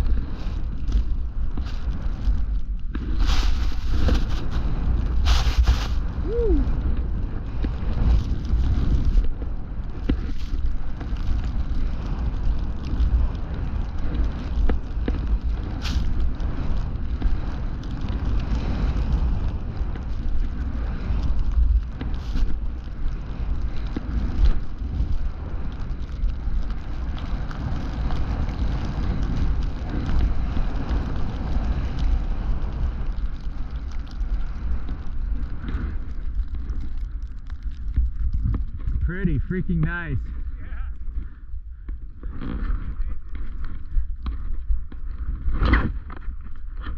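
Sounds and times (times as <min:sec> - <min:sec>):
wind buffeting microphone: 0:00.0 - 0:46.9
snowboard hissing through snow: 0:03.0 - 0:06.6.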